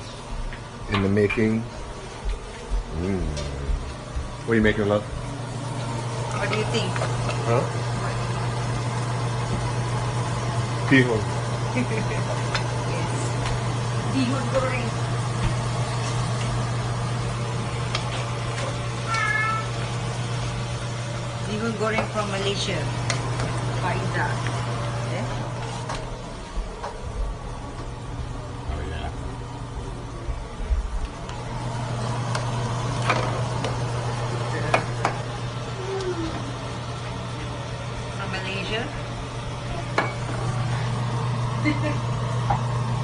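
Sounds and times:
steady low hum: 0.0 - 43.0
low hum: 1.6 - 18.5
sauce frying in a wok: 5.4 - 25.7
cat meowing: 19.0 - 19.8.

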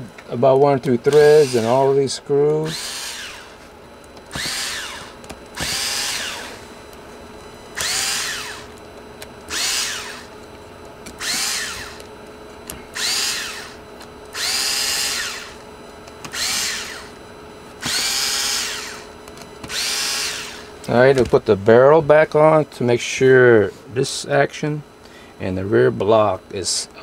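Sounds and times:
power drill spinning in bursts: 1.1 - 2.0, 2.6 - 3.7, 4.3 - 6.8, 7.7 - 8.8, 9.5 - 10.3, 11.2 - 12.1, 12.9 - 15.7, 16.3 - 17.2, 17.8 - 19.1, 19.7 - 21.1.

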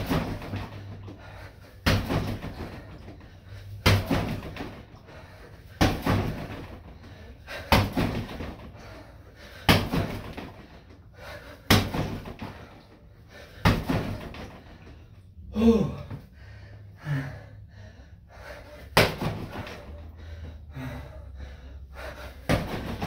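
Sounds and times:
kicks thudding on dummy: 0.0 - 0.9, 1.8 - 3.1, 3.8 - 5.0, 5.8 - 6.9, 7.6 - 8.8, 9.6 - 10.8, 11.6 - 12.7, 13.6 - 14.7, 19.0 - 20.0, 22.4 - 23.0.

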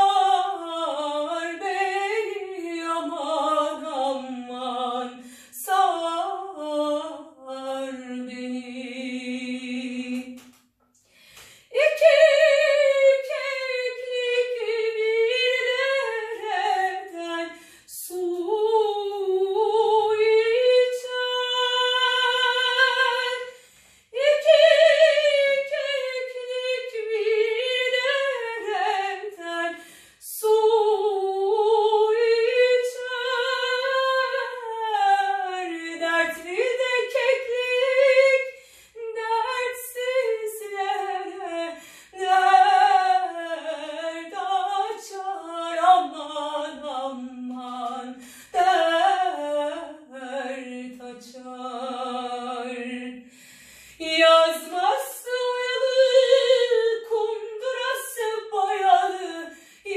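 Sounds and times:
woman singing operatically: 0.0 - 10.4, 11.7 - 23.5, 24.1 - 53.3, 54.0 - 59.9
singer breathing: 5.2 - 5.6, 11.0 - 11.8, 17.6 - 17.9, 23.5 - 24.2, 29.8 - 30.2, 38.5 - 39.0, 41.8 - 42.2, 48.2 - 48.6, 53.2 - 54.0, 59.5 - 59.9.

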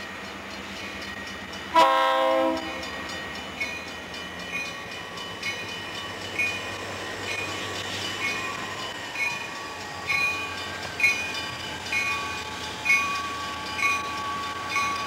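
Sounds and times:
train rumbling: 0.0 - 15.0
locomotive air horn: 1.7 - 2.8.

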